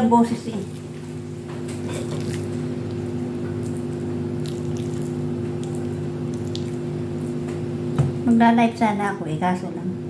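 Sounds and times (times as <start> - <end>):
steady low hum: 0.0 - 10.0
spoon scooping filling: 2.0 - 7.4.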